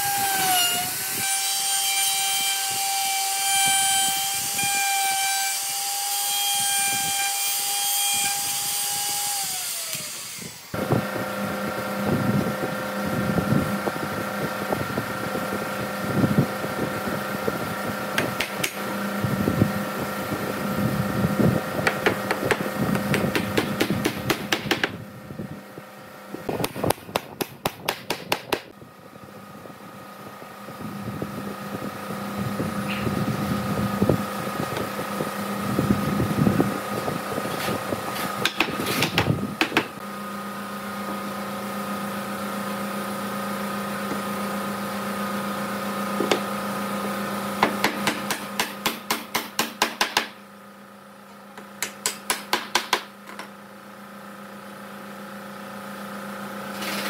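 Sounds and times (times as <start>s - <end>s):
electric fan humming: 0.0s - 57.0s.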